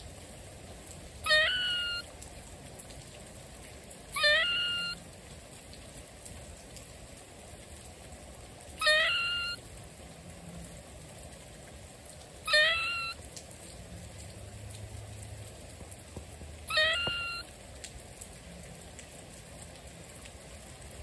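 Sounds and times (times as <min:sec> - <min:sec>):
steady rain falling: 0:00.0 - 0:21.0
short high rising call: 0:16.7 - 0:17.4.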